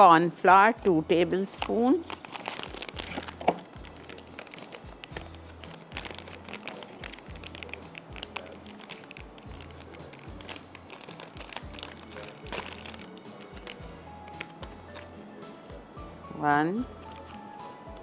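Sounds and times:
background music with low beat: 0.0s - 18.0s
packet crinkling and rustling: 1.5s - 15.2s.

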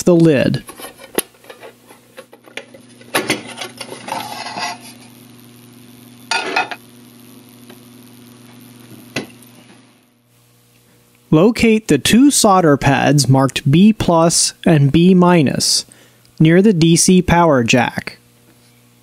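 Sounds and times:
rustling scrape: 0.6s - 2.2s, 2.8s - 5.1s
metal scraping: 0.6s - 5.1s.

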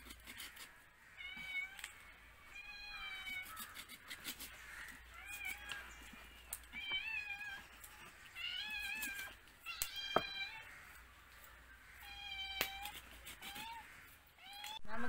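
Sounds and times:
cat meowing: 8.4s - 10.8s.

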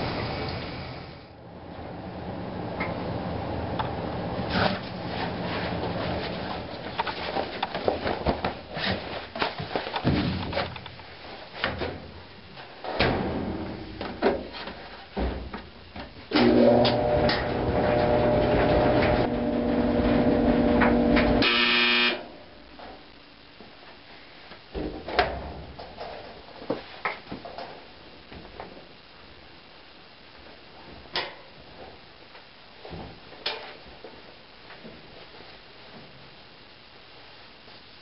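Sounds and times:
clothes dryer humming: 0.0s - 4.4s, 15.6s - 22.5s
knocks and clatter of laundry: 4.5s - 21.4s, 24.7s - 28.8s
dryer buzzer: 16.4s - 22.3s.

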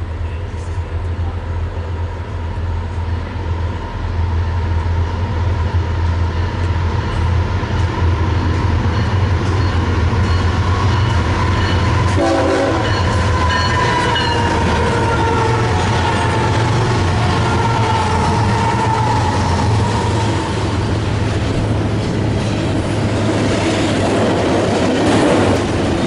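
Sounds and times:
diesel locomotive rumble: 0.0s - 26.0s
locomotive horn chord: 12.1s - 19.0s.

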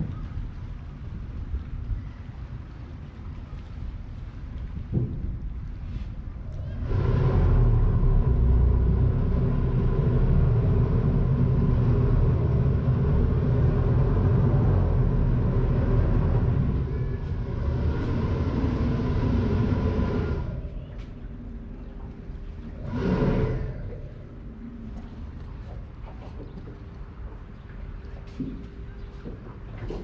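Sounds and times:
boat engine rumbling: 0.0s - 30.0s.

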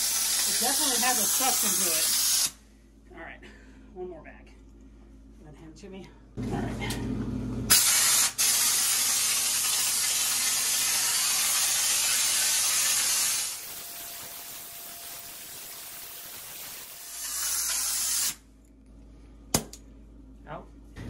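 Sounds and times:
texture spray gun hissing: 0.0s - 2.6s, 7.7s - 18.4s.

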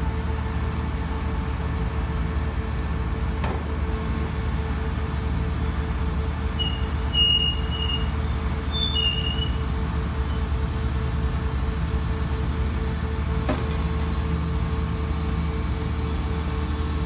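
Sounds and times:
machine droning and humming: 0.0s - 17.0s
brief high squeaks: 6.6s - 9.6s.

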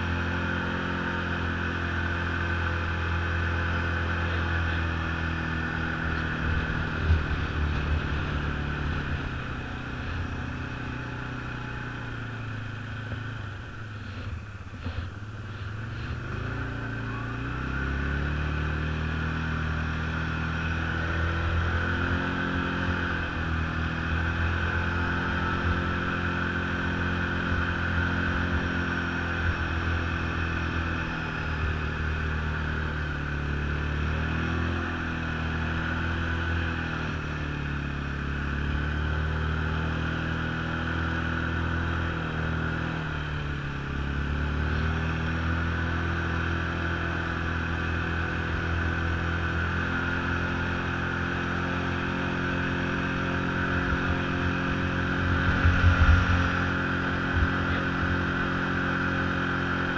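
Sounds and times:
snowmobile engine running: 0.0s - 59.9s
steady high whine: 50.3s - 59.9s.

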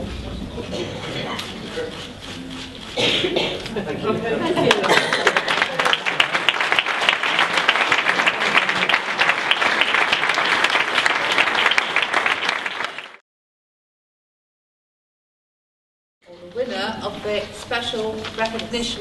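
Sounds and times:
audience applauding: 4.6s - 13.2s.

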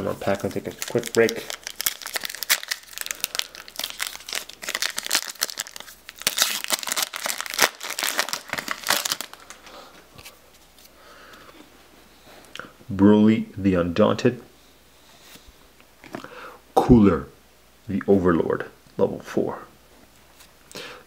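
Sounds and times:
foil wrapper crinkling and tearing: 0.2s - 9.7s.

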